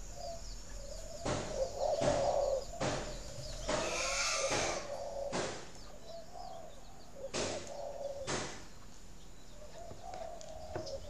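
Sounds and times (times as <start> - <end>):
dove cooing softly: 0.0 - 8.3, 9.6 - 11.0
small birds chirping: 0.0 - 11.0
sharp knocks: 1.2 - 5.7, 7.3 - 7.7, 8.3 - 8.7.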